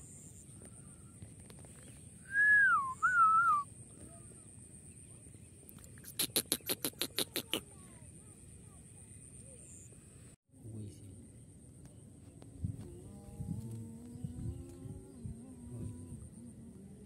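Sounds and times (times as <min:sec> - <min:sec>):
descending wavering whistle: 0:02.2 - 0:03.7
bird calling rapid short notes: 0:06.0 - 0:07.6.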